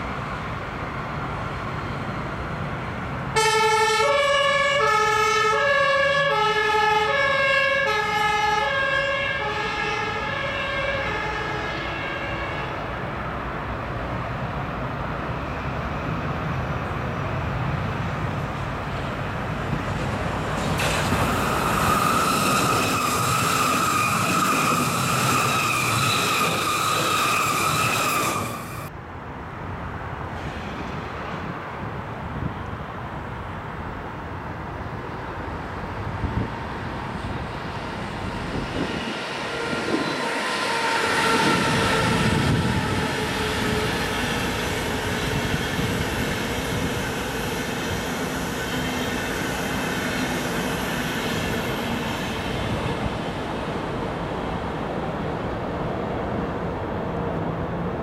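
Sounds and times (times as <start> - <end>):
electric train passing: 0.0 - 58.0
two-tone emergency siren: 3.4 - 12.7.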